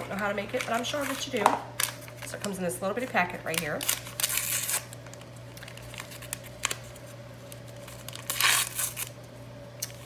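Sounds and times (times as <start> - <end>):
paper crinkling: 0.0 - 10.0
paper packet ripping: 3.4 - 9.2.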